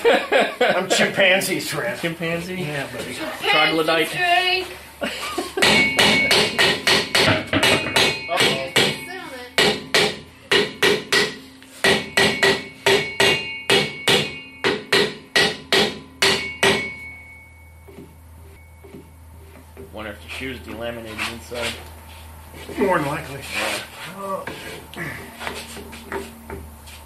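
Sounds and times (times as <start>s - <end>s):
hammer striking metal brake drum: 5.6s - 17.4s.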